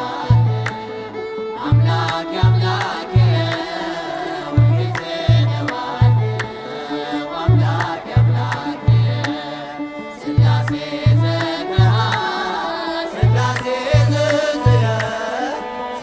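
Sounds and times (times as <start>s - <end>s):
group singing a hymn: 0.0s - 16.0s
hand claps: 0.4s - 1.0s, 1.8s - 4.0s, 4.8s - 6.7s, 7.6s - 9.4s, 10.4s - 12.4s, 13.2s - 15.2s
deep drum beats: 1.7s - 3.6s, 4.6s - 6.4s, 7.5s - 9.2s, 10.4s - 12.2s, 13.2s - 15.1s.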